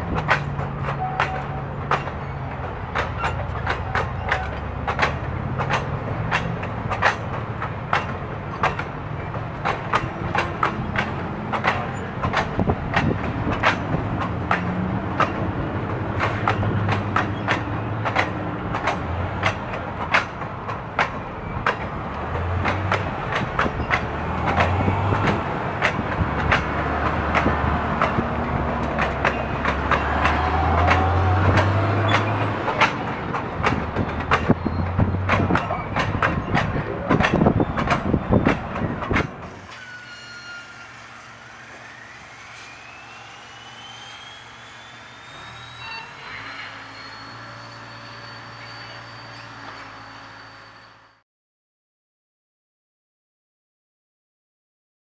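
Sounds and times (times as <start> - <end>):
wheel clicks on rails: 0.0 - 39.6
train rumbling past: 0.0 - 51.2.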